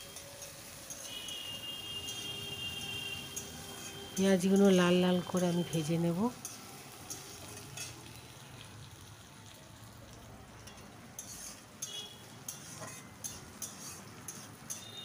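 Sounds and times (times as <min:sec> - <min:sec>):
onions sizzling in oil: 0:00.0 - 0:15.0
spatula scraping a pan: 0:03.3 - 0:04.7, 0:06.4 - 0:08.0, 0:10.7 - 0:15.0.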